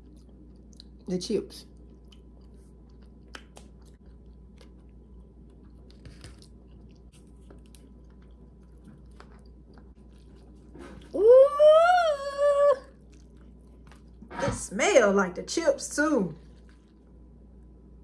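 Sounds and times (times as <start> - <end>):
close-up chewing: 0.0 - 11.2, 12.8 - 14.3, 16.4 - 17.7
steady low hum: 0.0 - 18.0.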